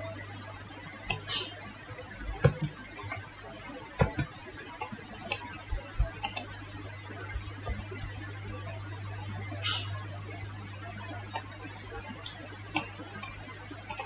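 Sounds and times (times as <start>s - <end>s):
low hum: 0.0s - 14.0s
computer mouse clicks: 1.1s - 1.4s, 2.2s - 3.2s, 4.0s - 6.6s, 7.2s - 8.3s, 12.2s - 14.0s.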